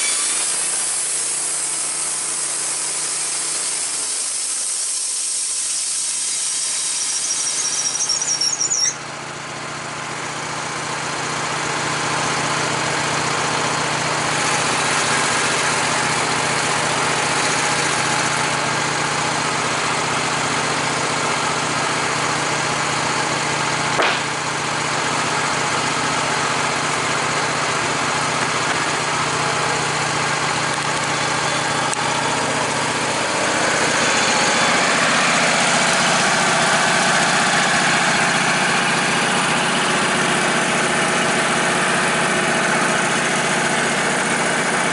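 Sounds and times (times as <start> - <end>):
saw blade squealing: 0.0 - 9.2, 31.1 - 42.2
gasoline engine running: 0.0 - 44.9
short knock: 24.0 - 24.3.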